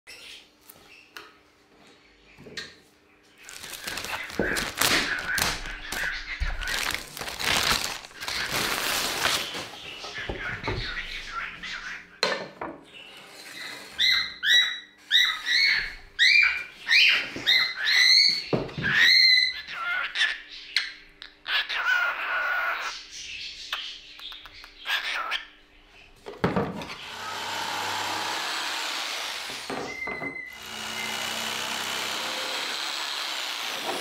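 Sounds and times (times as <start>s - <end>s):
pet bird calling: 14.0s - 25.6s.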